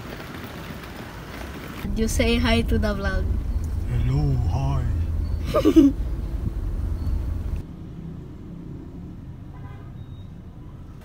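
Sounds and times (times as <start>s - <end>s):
car rumble from inside cabin: 1.8s - 7.6s
low hum: 1.8s - 7.6s.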